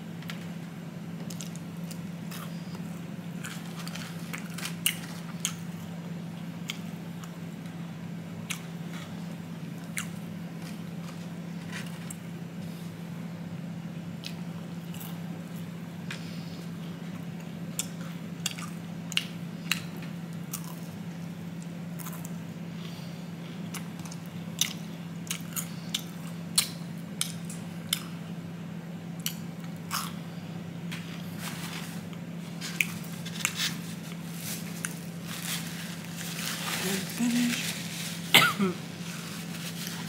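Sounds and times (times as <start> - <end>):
steady low hum: 0.0 - 40.0
chewing fried chicken: 1.2 - 12.3, 16.6 - 28.2.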